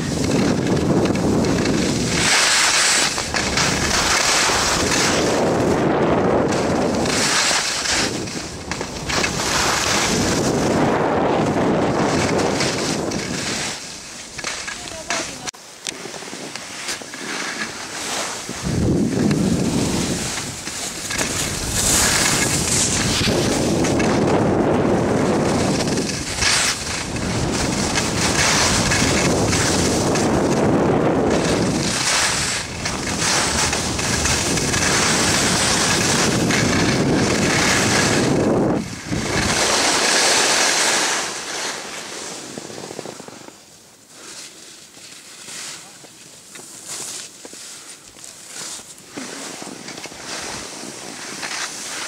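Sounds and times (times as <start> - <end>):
wind buffeting microphone: 0.0 - 15.6, 18.3 - 41.5
skis scraping on snow: 0.0 - 52.0.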